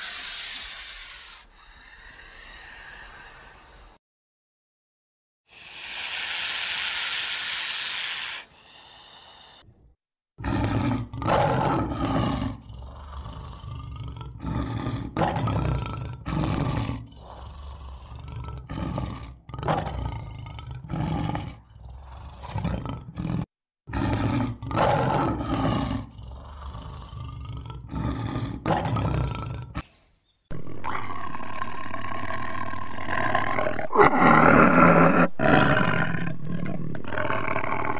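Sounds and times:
lion roaring and grunting: 10.4s - 29.8s, 30.5s - 37.9s
tiger growling and snarling: 10.4s - 29.8s, 30.5s - 37.9s.

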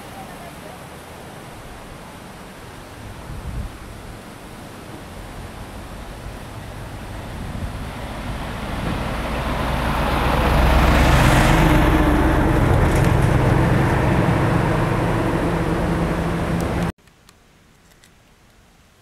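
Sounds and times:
river rushing: 0.0s - 16.9s
vehicle passing by: 5.0s - 16.9s.

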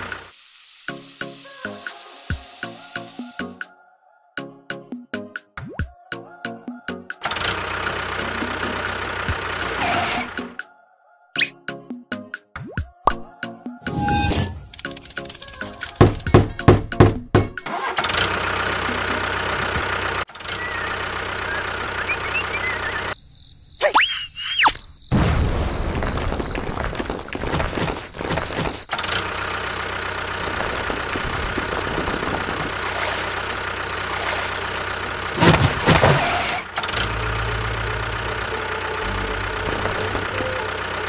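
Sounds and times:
tractor engine running: 7.2s - 10.4s, 14.6s - 23.2s, 25.9s - 41.0s
gliding whistle tones: 13.8s - 14.7s, 20.5s - 23.2s.

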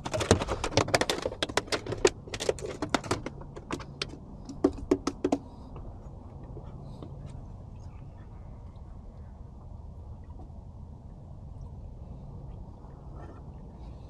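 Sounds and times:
faint low hum: 5.4s - 14.0s.

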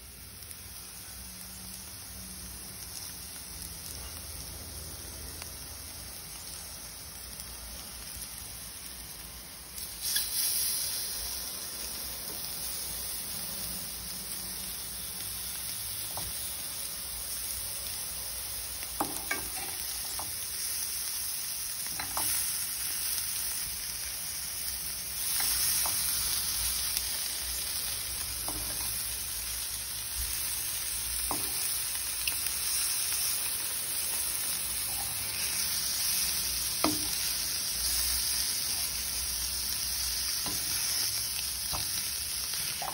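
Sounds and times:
food sizzling in a frying pan: 0.0s - 42.9s
spoon clinking and scraping pan: 19.0s - 20.3s, 21.9s - 22.4s.

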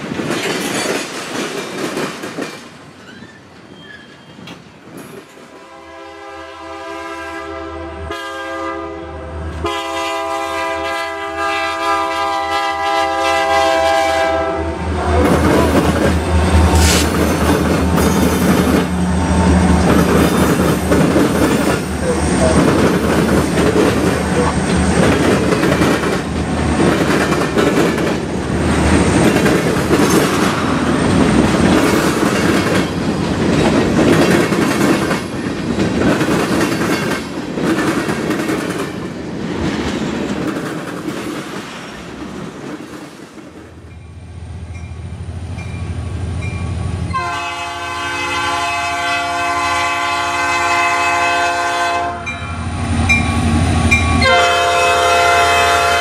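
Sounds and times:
freight train wheels clacking: 0.0s - 5.6s, 15.1s - 44.0s
diesel locomotive rumble: 11.9s - 36.6s.

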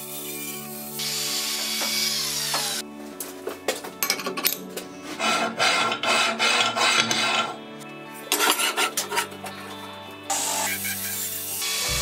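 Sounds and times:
metal plate scraping on metal: 5.1s - 7.6s, 8.3s - 9.6s.

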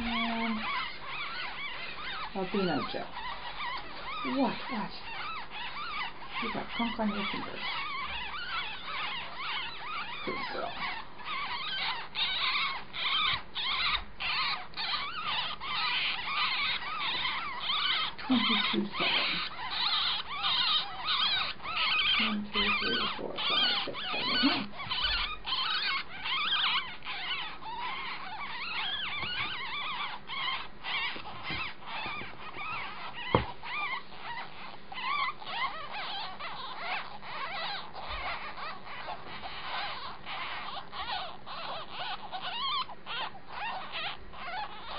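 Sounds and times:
young animals squeaking: 0.0s - 44.9s
sharp tap: 33.3s - 33.6s.

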